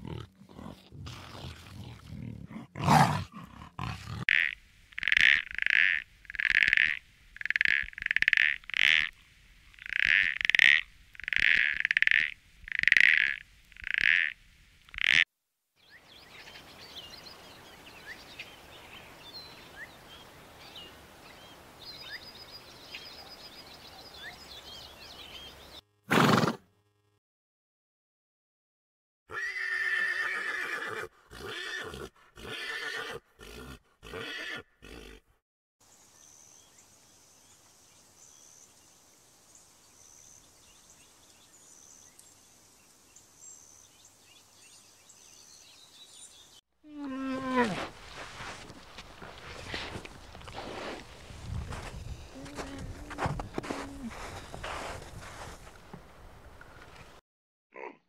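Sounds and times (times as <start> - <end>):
low hiss: 35.9 - 46.5.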